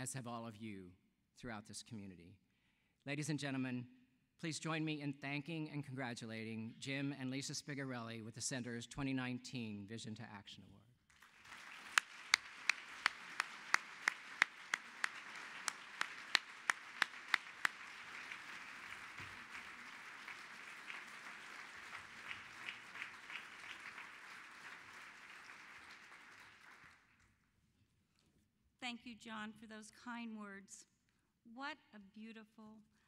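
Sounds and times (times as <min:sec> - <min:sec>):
audience applauding: 0:11.1 - 0:27.2
loud sharp claps close by: 0:11.1 - 0:27.2.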